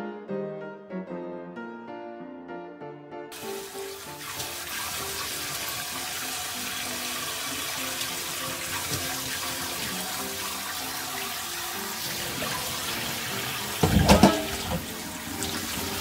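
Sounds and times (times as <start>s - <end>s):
soft piano music: 0.0s - 16.0s
rinsing chicken by hand in bowl: 3.4s - 16.0s
tap running into steel sink: 12.2s - 15.7s.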